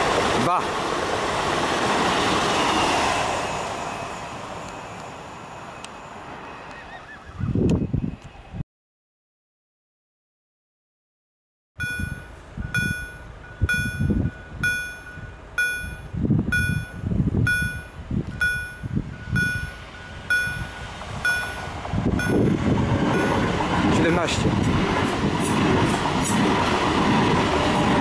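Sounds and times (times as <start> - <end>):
passing train: 0.0 - 8.6, 11.8 - 28.0
level-crossing warning bell: 11.8 - 23.6
low rumbling: 11.8 - 28.0.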